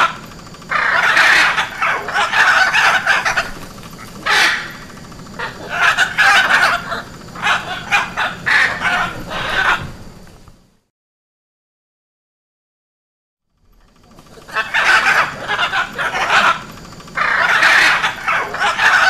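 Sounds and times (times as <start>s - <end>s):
macaw squawking: 0.0s - 10.1s, 13.9s - 19.0s.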